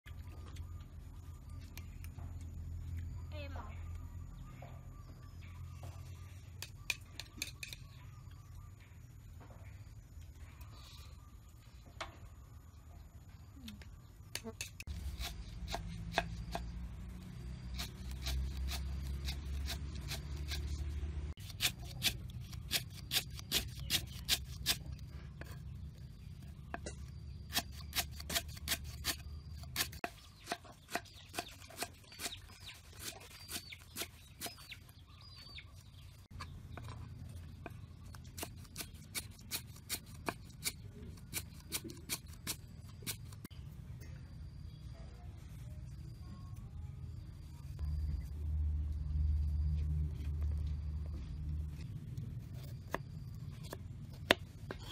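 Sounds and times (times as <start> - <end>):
low steady rumble: 42.6 - 54.9.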